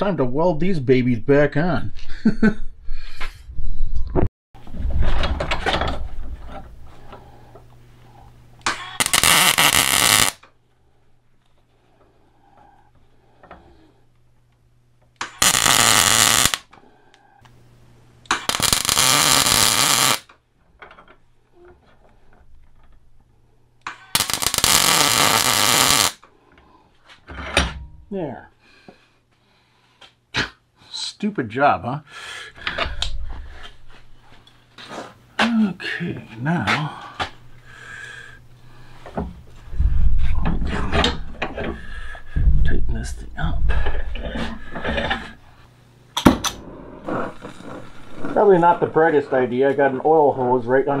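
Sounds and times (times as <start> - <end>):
welder low hum: 4.7 - 10.4, 15.3 - 20.2, 24.2 - 26.2, 46.3 - 50.9
welding arc crackle: 8.9 - 10.4, 15.2 - 16.7, 18.3 - 20.3, 24.0 - 26.2, 46.5 - 48.7.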